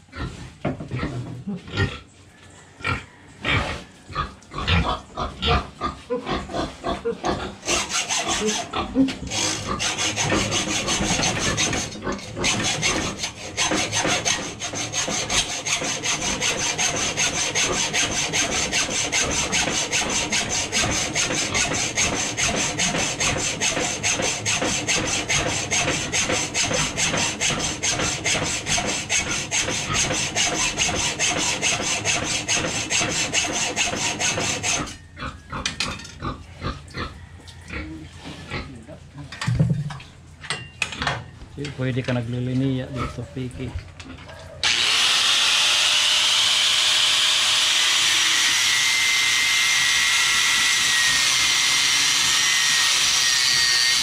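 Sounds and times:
hacksaw cutting metal: 7.6 - 35.0, 44.6 - 54.0.

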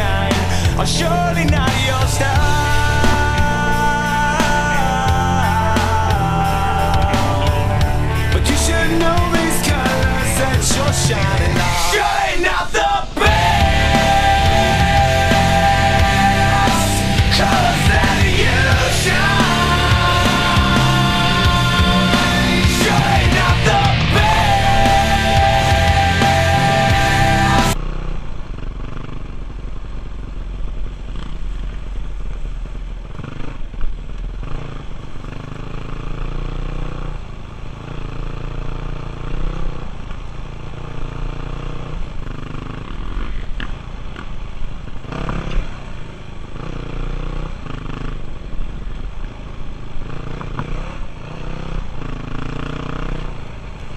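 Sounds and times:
dirt bike engine revving: 0.0 - 29.9, 31.0 - 53.9.

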